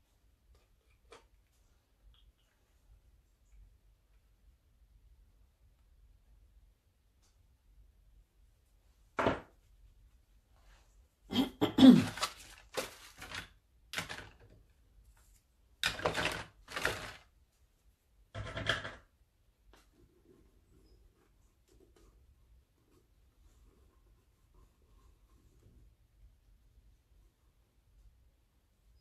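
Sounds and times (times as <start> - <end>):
objects knocking and thunking: 9.2 - 9.6, 11.8 - 14.7, 15.8 - 17.3, 18.3 - 19.1.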